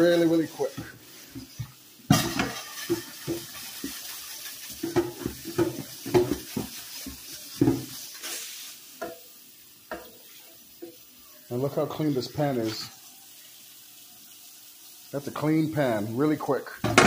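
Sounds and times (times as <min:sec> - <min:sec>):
tap water splashing: 0:00.8 - 0:04.0, 0:04.8 - 0:07.9.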